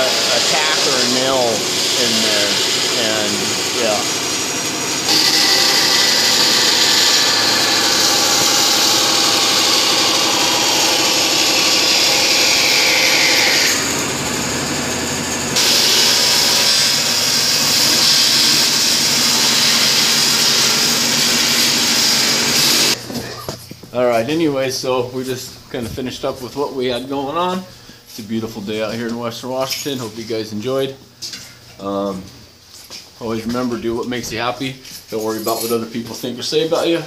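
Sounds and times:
bandsaw cutting wood: 0.0 - 23.0.

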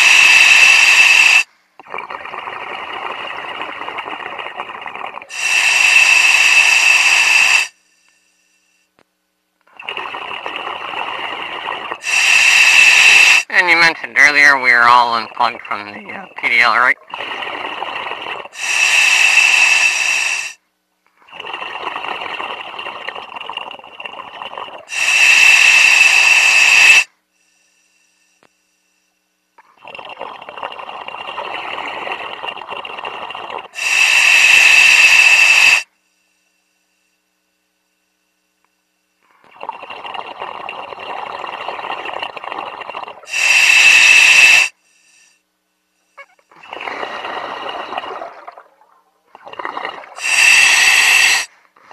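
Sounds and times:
diver breathing over radio: 0.0 - 8.7, 9.9 - 20.6, 30.8 - 35.9, 39.7 - 45.5, 49.6 - 51.9.

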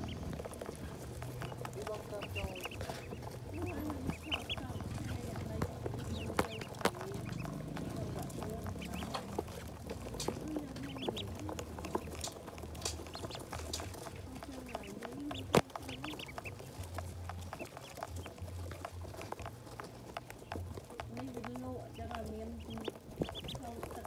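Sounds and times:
ducklings peeping: 0.0 - 24.0.

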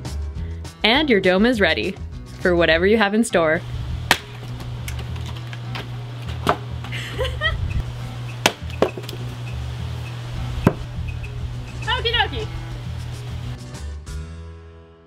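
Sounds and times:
axe chopping wood: 4.1 - 4.7, 6.3 - 6.7, 8.4 - 9.2, 10.6 - 10.9.

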